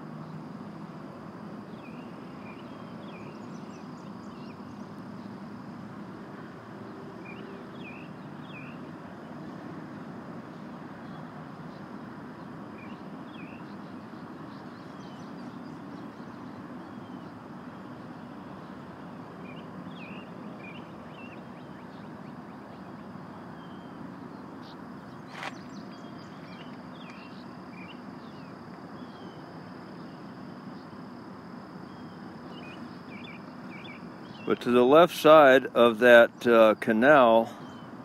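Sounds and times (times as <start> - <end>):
faint high steady tone: 0.0 - 38.0
outdoor background hiss: 0.0 - 38.0
birds chirping: 7.2 - 8.9, 12.8 - 30.9, 31.8 - 38.0.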